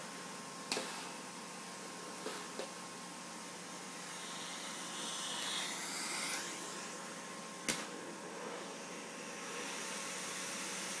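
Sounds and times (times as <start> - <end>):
vacuum cleaner running: 3.5 - 11.0.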